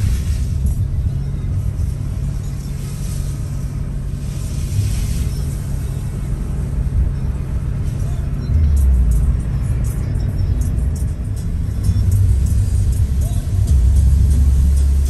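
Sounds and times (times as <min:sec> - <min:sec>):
tyre hiss on wet road: 0:00.0 - 0:00.9, 0:01.9 - 0:06.6
car engine and road rumble: 0:00.0 - 0:15.0.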